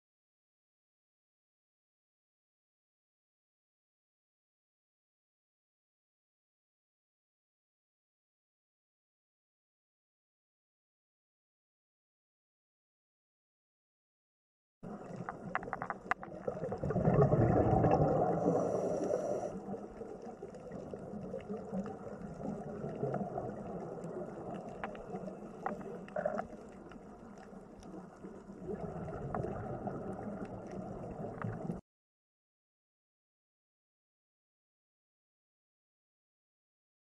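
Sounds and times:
water gurgling and splashing: 14.9 - 31.8
small clicks: 15.0 - 16.6, 20.0 - 28.5, 29.1 - 31.8.

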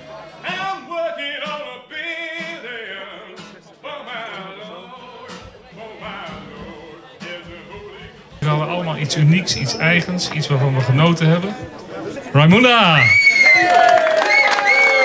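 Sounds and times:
background music with singing: 0.0 - 8.7.

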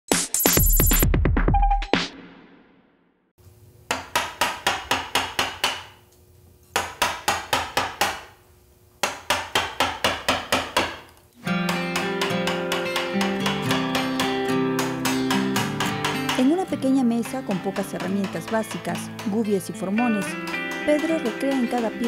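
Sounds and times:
acoustic guitar music: 11.4 - 22.0
mallet knocking on gouge: 11.7 - 22.0.

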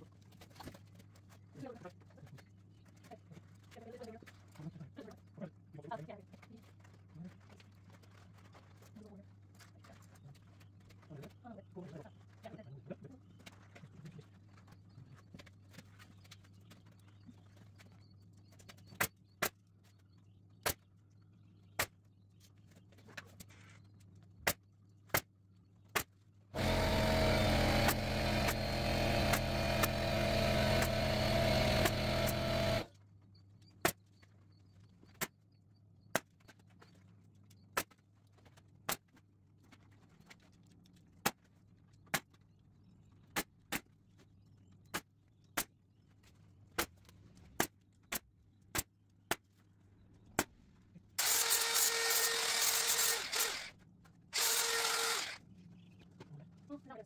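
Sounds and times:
air compressor motor running: 26.6 - 32.9, 51.2 - 53.7, 54.4 - 55.4
pneumatic staple gun firing: 26.6 - 32.9, 51.2 - 53.7, 54.4 - 55.4.

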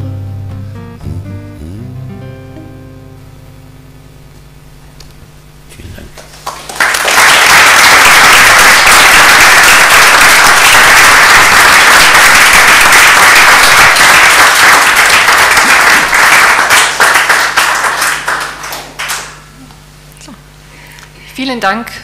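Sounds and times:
audience applauding: 6.1 - 19.5.

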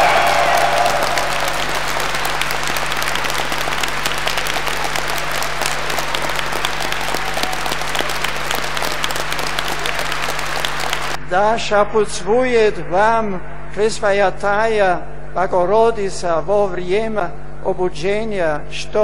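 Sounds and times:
crowd applauding: 0.0 - 11.2.

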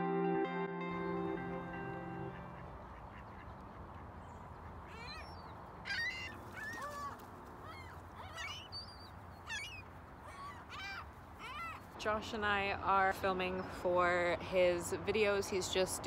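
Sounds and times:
gulls calling: 2.2 - 12.0.

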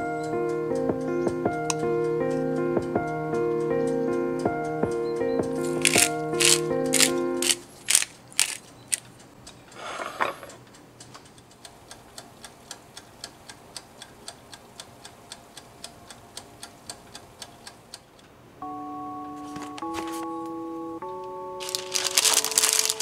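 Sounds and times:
music: 0.0 - 7.6, 18.6 - 23.0
sharp clicks: 5.4 - 9.6
timer dial ticking: 10.5 - 18.3.

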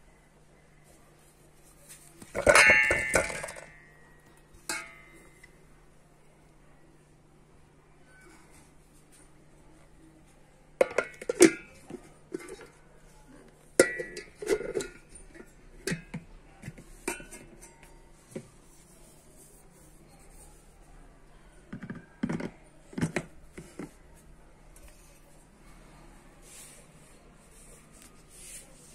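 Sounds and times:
steel bowl and lid clattering: 2.3 - 3.8, 4.6 - 5.3, 10.8 - 12.7, 13.8 - 16.2, 17.0 - 18.0.

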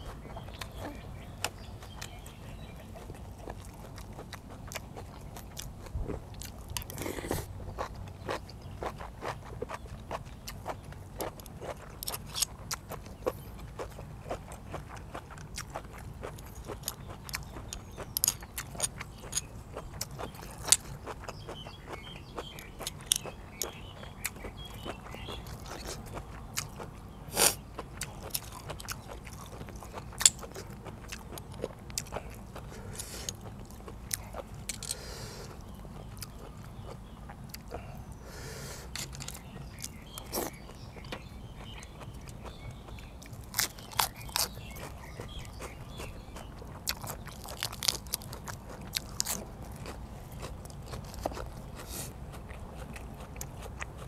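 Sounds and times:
chewing: 0.0 - 54.0.

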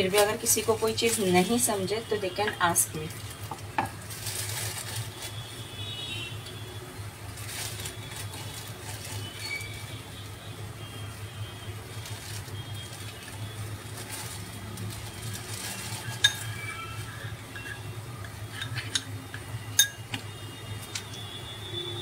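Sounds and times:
metal utensils clinking: 15.2 - 20.2.

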